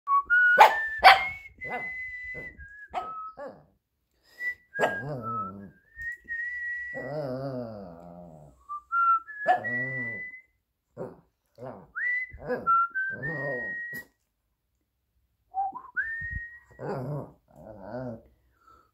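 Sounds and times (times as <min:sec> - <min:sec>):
person whistling a slow tune: 0:00.1 - 0:03.6, 0:04.2 - 0:07.6, 0:08.6 - 0:10.6, 0:12.0 - 0:14.2, 0:15.5 - 0:16.9.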